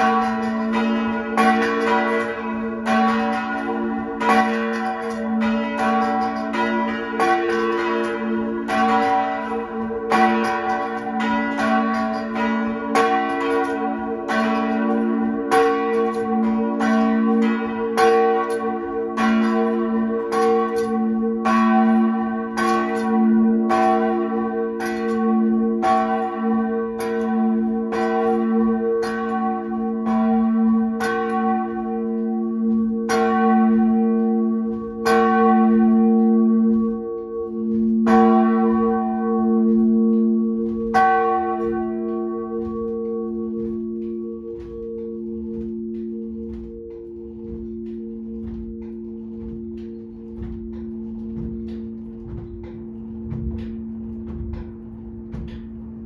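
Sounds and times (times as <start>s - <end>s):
church bells striking: 0.0s - 56.0s.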